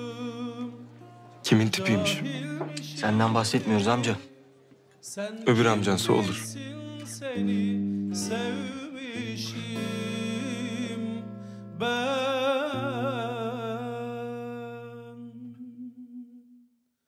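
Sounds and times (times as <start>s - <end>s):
man singing a ballad: 0.0s - 4.3s, 5.0s - 16.6s
instrumental accompaniment: 0.0s - 13.4s.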